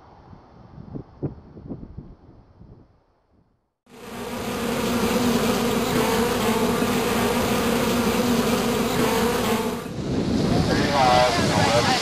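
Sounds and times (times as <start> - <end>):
bees buzzing: 3.9 - 10.2.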